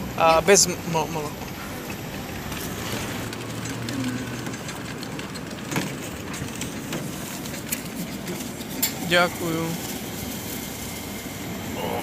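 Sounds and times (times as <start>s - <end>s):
street hiss and hum: 0.0s - 12.0s
sharp clicks and knocks: 1.4s - 9.0s.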